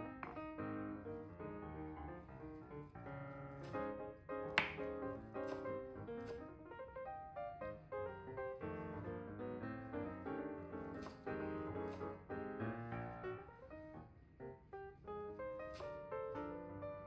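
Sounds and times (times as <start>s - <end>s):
piano music: 0.0s - 17.0s
knife chopping on cutting board: 4.6s - 6.4s.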